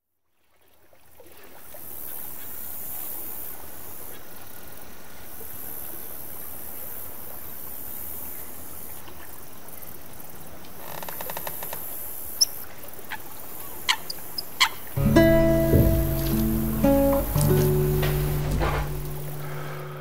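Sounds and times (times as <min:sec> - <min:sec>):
high shimmering band: 0:15.0 - 0:20.0
marsh ambience hiss: 0:15.0 - 0:20.0.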